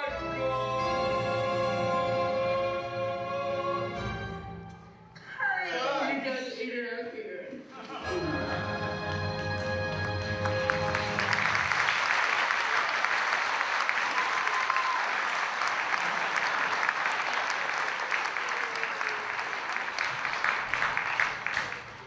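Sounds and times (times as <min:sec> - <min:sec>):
audience applauding: 0:08.1 - 0:22.0.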